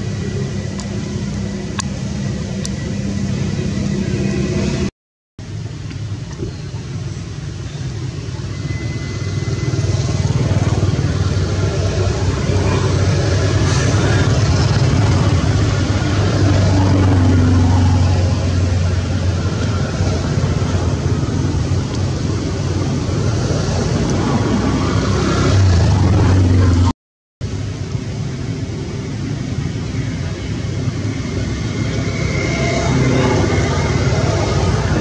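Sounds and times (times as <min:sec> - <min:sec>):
outdoor background rumble and hiss: 0:00.0 - 0:35.0.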